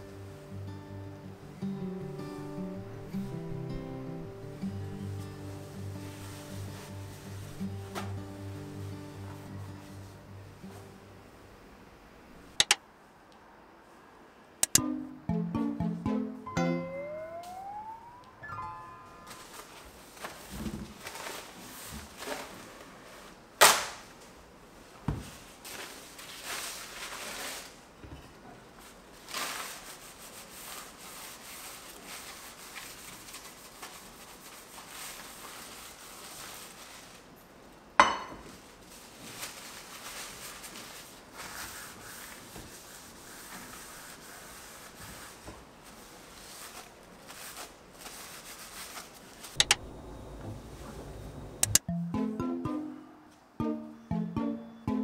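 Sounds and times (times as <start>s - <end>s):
towel crumpling and rubbing: 5.2s - 10.1s, 29.1s - 37.3s, 38.6s - 49.6s.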